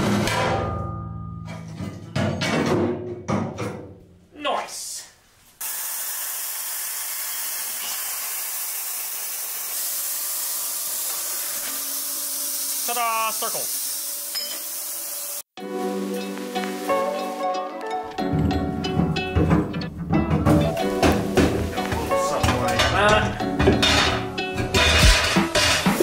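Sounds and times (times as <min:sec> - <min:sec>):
music: 0:00.0 - 0:03.3, 0:15.6 - 0:26.0
plasma cutter hissing: 0:05.6 - 0:15.5.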